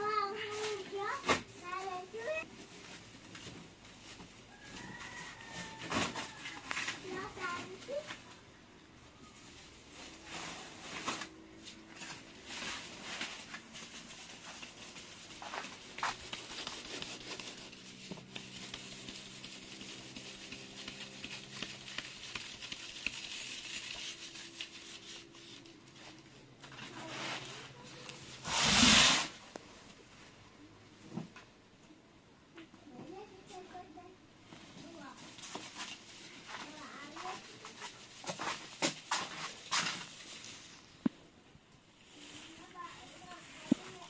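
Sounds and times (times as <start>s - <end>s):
flour rustling through sieve: 0.0s - 8.3s, 9.4s - 29.4s, 34.6s - 41.0s, 42.0s - 44.0s
sieve rim scraping: 26.8s - 29.4s.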